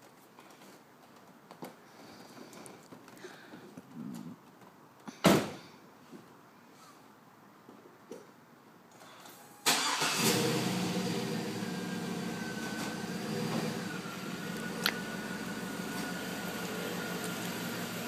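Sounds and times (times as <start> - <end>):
car engine starting and idling: 9.3 - 18.0.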